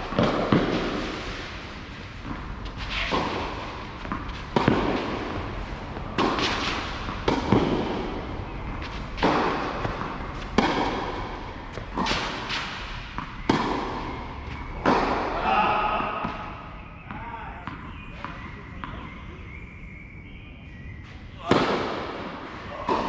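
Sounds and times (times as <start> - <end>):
tennis ball struck by rackets: 0.0 - 15.4, 21.5 - 23.0.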